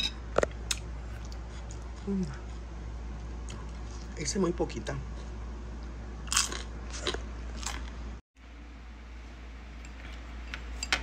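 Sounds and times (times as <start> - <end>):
faint chewing: 0.7 - 4.1.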